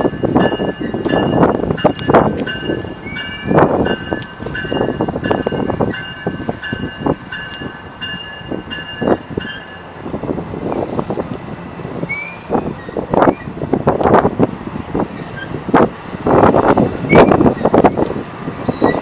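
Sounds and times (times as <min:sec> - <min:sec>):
train wheels clacking: 0:00.0 - 0:14.2
train rumble: 0:00.0 - 0:19.0.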